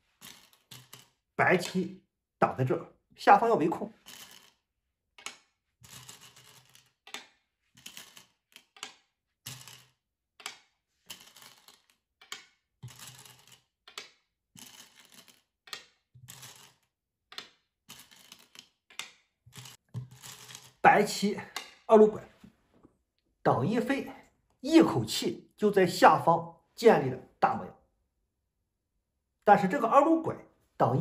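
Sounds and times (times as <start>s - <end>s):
go stones clacking on board: 0.2s - 1.8s, 4.0s - 4.6s, 5.2s - 20.8s, 21.4s - 22.9s.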